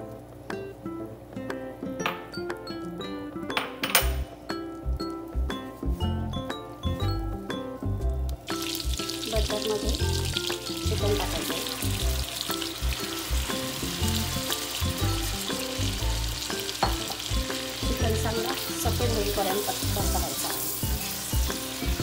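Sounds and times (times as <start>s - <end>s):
chicken sizzling in butter: 8.5s - 22.0s.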